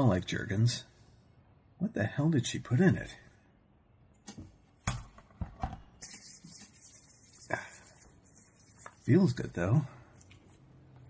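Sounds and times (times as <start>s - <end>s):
palms rubbing together: 6.0s - 9.6s.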